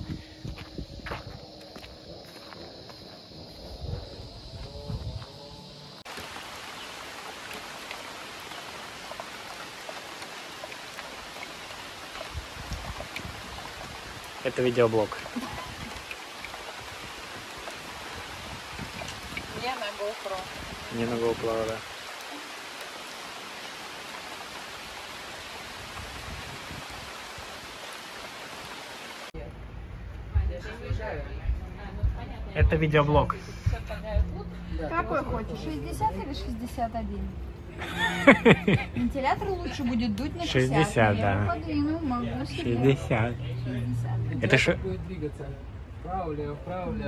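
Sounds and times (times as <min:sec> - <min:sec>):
stream water hissing: 0:00.0 - 0:29.4
rain falling on creek: 0:05.9 - 0:29.4, 0:37.8 - 0:41.6
water drips and splashes: 0:06.0 - 0:29.4.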